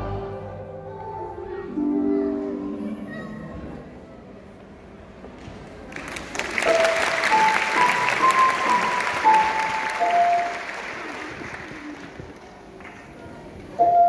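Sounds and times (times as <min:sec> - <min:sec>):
audience applauding: 0:05.9 - 0:13.0
held musical notes: 0:06.6 - 0:11.0.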